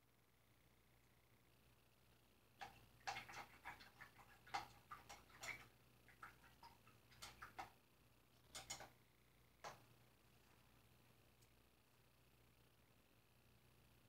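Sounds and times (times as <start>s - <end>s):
paintbrushes clicking and tapping: 2.6s - 7.8s, 8.4s - 9.0s.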